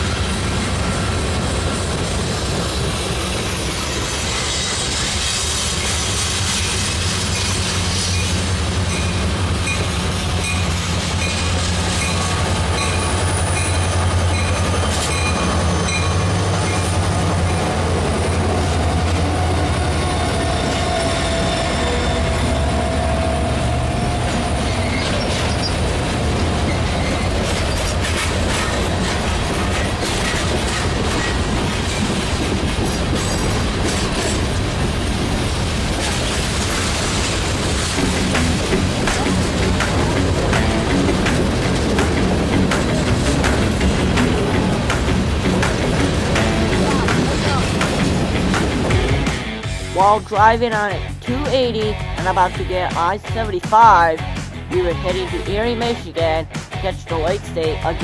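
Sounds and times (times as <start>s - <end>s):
diesel locomotives rumbling past: 0.0s - 51.2s
wheel squeal: 3.8s - 10.6s, 19.0s - 23.0s, 24.1s - 25.9s, 26.6s - 28.7s.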